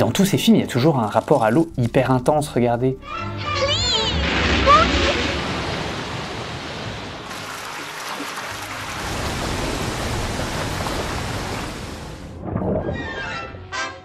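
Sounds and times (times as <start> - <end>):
water pouring into pool: 4.1 - 12.2.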